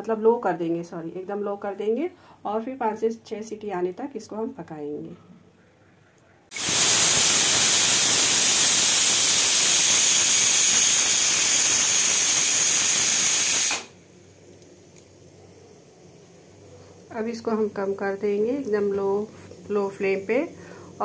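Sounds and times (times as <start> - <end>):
pressure cooker whistle hissing: 6.5 - 14.0.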